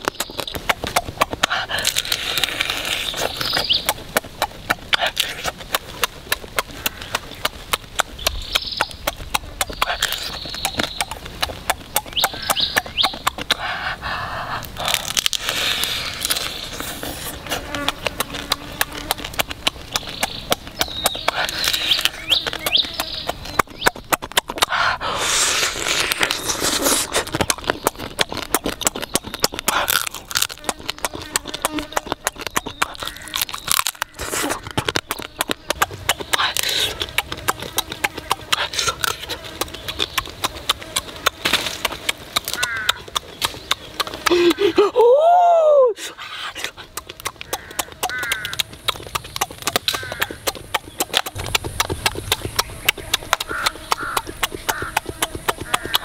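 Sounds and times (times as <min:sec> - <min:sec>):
wet lip smacks and clicks: 0:00.0 - 0:44.8, 0:46.0 - 0:56.0
slurping and sucking: 0:01.2 - 0:03.7, 0:09.6 - 0:10.7, 0:13.3 - 0:23.6, 0:24.4 - 0:35.3, 0:36.2 - 0:43.2, 0:46.0 - 0:56.0.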